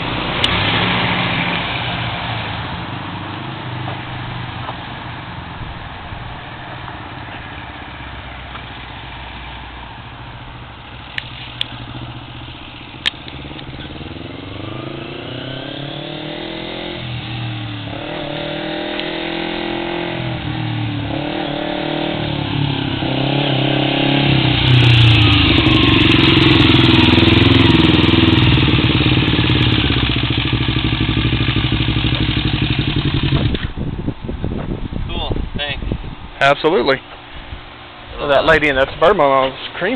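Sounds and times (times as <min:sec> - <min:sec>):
motorcycle engine revving: 0:10.4 - 0:34.0.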